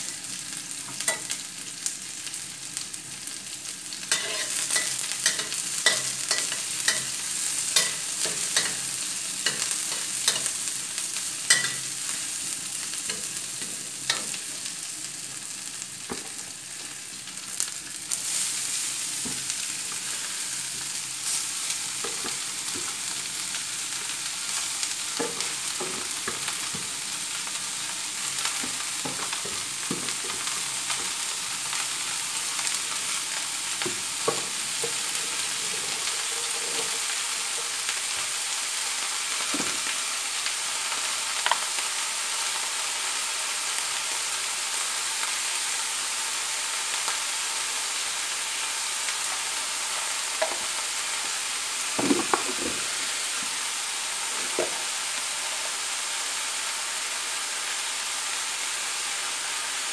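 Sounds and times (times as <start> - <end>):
sizzling in a wok: 0.0 - 59.9
spatula scraping wok: 4.1 - 10.8, 11.5 - 12.0, 34.2 - 37.9.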